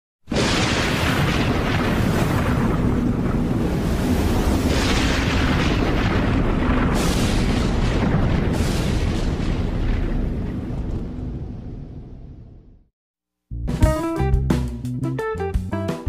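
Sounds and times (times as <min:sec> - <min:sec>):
deep explosion-like rumble: 0:00.3 - 0:12.9.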